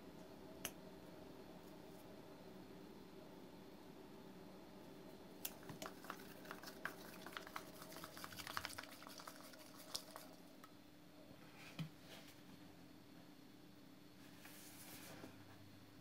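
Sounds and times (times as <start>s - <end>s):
stick stirring slime in bowl: 5.5s - 10.4s.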